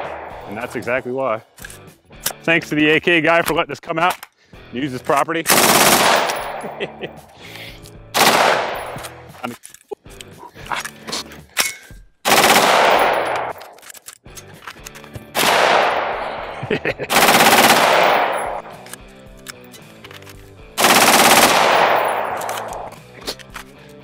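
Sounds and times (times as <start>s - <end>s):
rifle firing rapid bursts: 5.5s - 6.6s, 8.2s - 9.0s, 12.2s - 13.6s, 15.4s - 16.2s, 17.1s - 18.7s, 20.8s - 22.9s.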